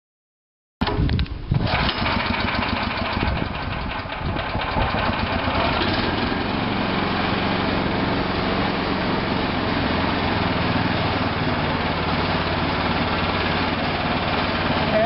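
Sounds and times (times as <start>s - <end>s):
small petrol engine idling: 1.6s - 15.0s.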